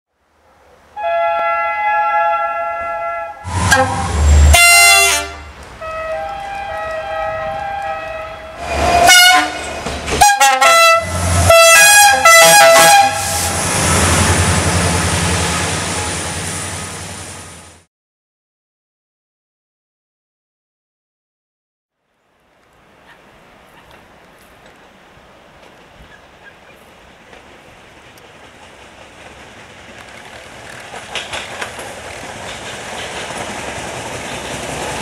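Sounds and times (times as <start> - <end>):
locomotive horn blasts: 1.0 - 16.8
locomotive rumbling and hissing: 3.4 - 17.8, 22.8 - 35.0.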